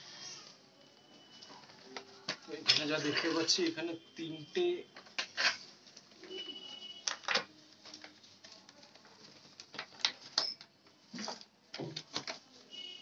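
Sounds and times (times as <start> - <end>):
plastic parts clicking and knocking: 7.0 - 8.2, 8.9 - 12.5.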